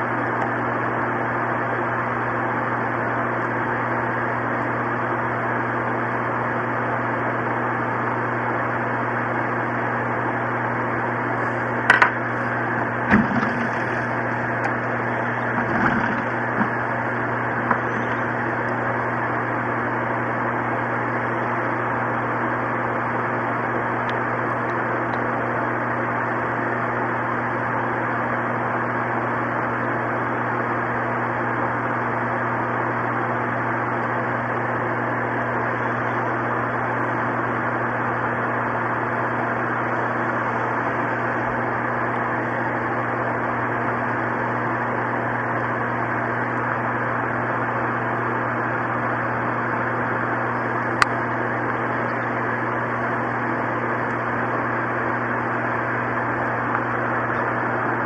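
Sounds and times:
low hum: 11.1s - 21.8s.

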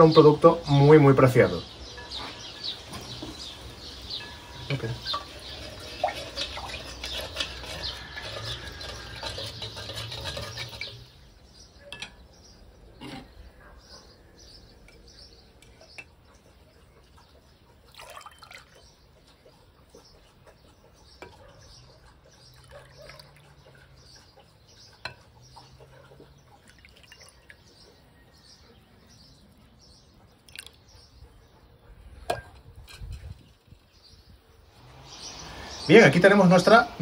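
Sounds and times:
metal ladle clinking: 2.0s - 11.1s, 11.8s - 12.2s
liquid pouring and dripping: 17.9s - 18.9s.

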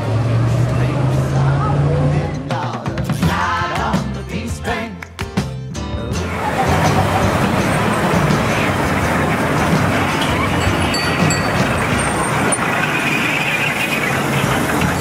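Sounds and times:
kiddie train mechanical noise: 6.3s - 15.0s.

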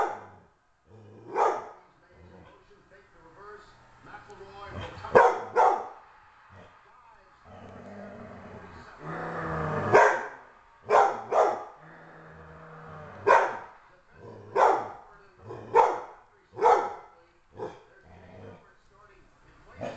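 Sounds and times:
dog growling low: 0.3s - 1.4s, 7.5s - 10.0s, 11.8s - 13.3s, 14.2s - 14.6s, 17.5s - 18.7s
dog barking sharply: 1.3s - 1.8s, 5.1s - 6.0s, 9.9s - 11.7s, 13.2s - 13.7s, 14.5s - 15.0s, 15.7s - 17.8s.

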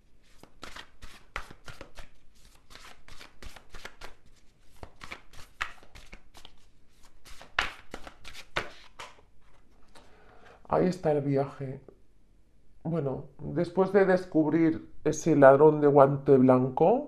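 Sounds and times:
cards being shuffled: 0.2s - 10.1s.

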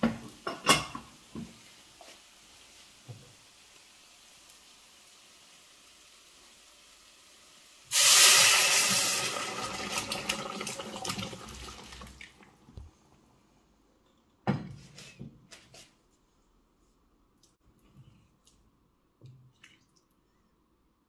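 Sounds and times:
water splashing and hissing in pan: 1.5s - 12.3s
crackling in pan: 1.7s - 10.5s.

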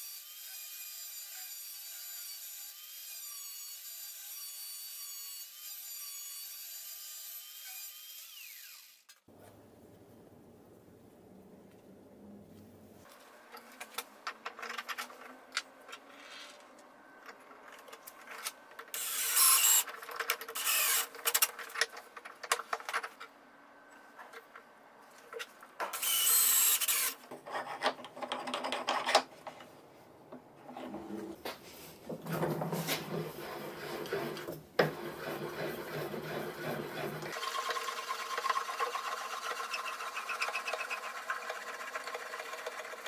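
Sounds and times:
vise clicks and knocks: 13.5s - 23.3s, 27.3s - 29.7s, 32.0s - 41.6s
screw rasping and scraping: 25.3s - 29.3s, 32.3s - 37.4s, 38.4s - 42.5s.

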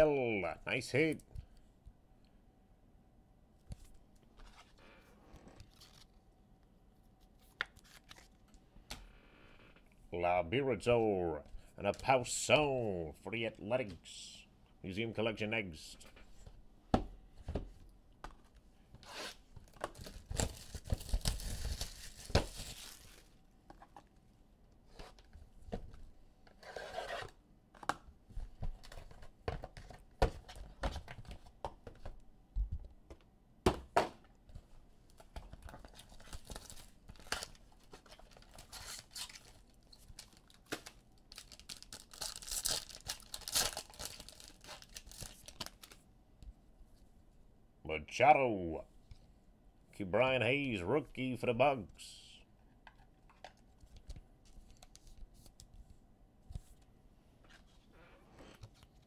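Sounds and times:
packaging tearing and crinkling: 19.9s - 23.3s, 35.9s - 46.0s.

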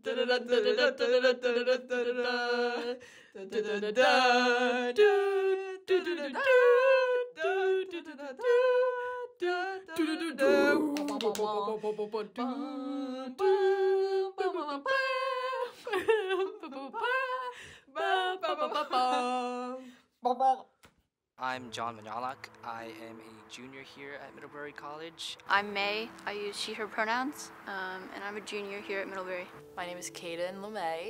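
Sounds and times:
person singing wordless tune: 0.0s - 20.0s.

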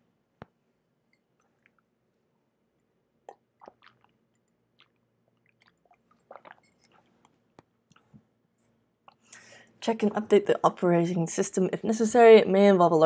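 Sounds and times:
person sipping and swallowing: 3.2s - 8.2s.

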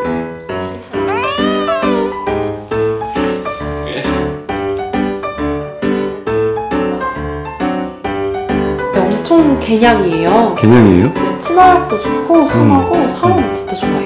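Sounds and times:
light piano music: 0.0s - 14.0s
cat meowing: 1.0s - 2.4s.

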